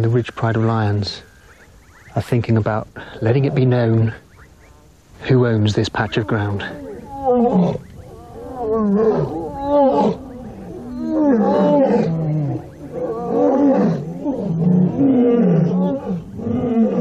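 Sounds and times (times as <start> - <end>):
lioness roaring: 5.9 - 17.0.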